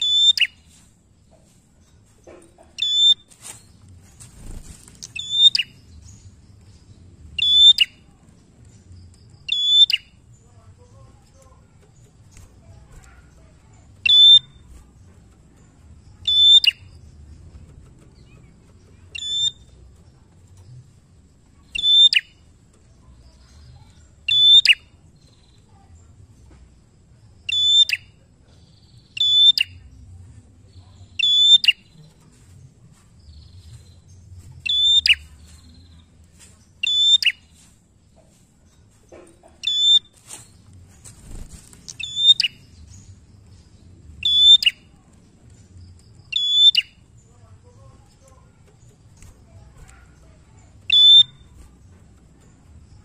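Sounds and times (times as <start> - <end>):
bird high-pitched calls: 0.0 - 0.8, 2.8 - 3.6, 4.5 - 5.9, 7.4 - 8.1, 9.4 - 10.2, 14.0 - 14.8, 16.2 - 17.0, 18.2 - 19.8, 21.6 - 22.4, 23.3 - 25.0, 27.4 - 28.2, 29.0 - 29.9, 31.0 - 32.0, 34.6 - 36.1, 36.8 - 37.7, 39.6 - 40.6, 41.2 - 43.2, 44.2 - 45.0, 46.3 - 47.2, 49.8 - 51.8.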